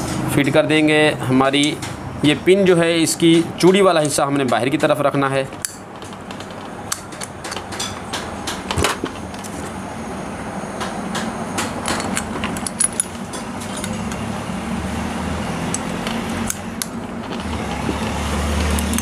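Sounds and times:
low background hum: 0.0s - 19.0s
metallic clicks of small steel parts: 11.8s - 14.2s.

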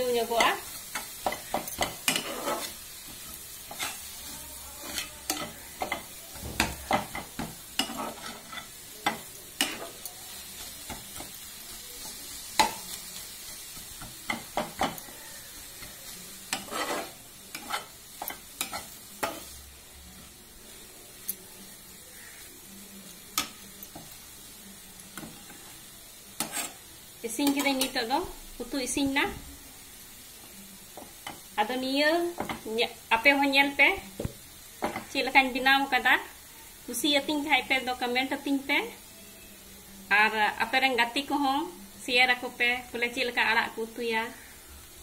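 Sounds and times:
leaves sizzling in a pan: 0.0s - 45.0s
spatula scraping a pan: 0.2s - 11.4s, 12.0s - 19.6s, 26.4s - 26.8s.

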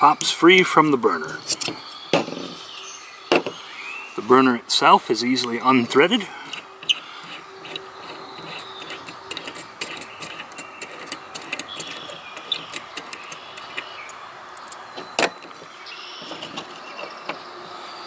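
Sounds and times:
small metallic clicks and scrapes: 6.4s - 17.4s.

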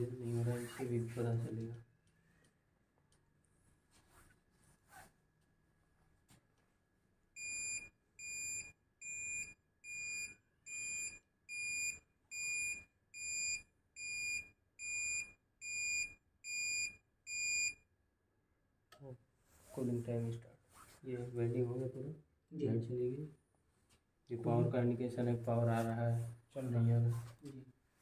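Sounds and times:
buzzer beeps: 7.4s - 17.8s.

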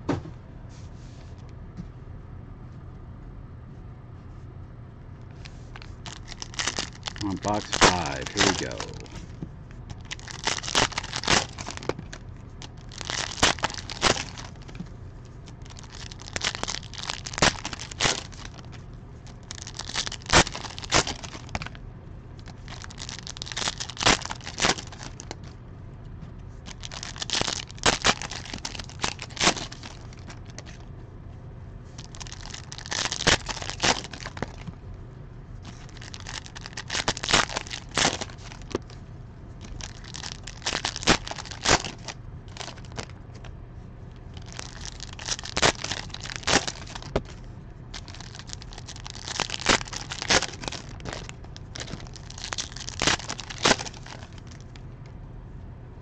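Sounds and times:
plastic wrapping crinkling and tearing: 5.4s - 14.8s, 15.6s - 21.8s, 22.4s - 25.5s, 26.7s - 30.8s, 32.0s - 34.7s, 35.6s - 39.0s, 39.6s - 43.4s, 44.3s - 54.8s.

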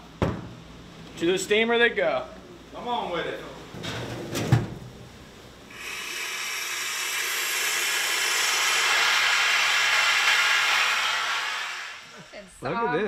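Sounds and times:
steam hissing: 5.7s - 12.6s.

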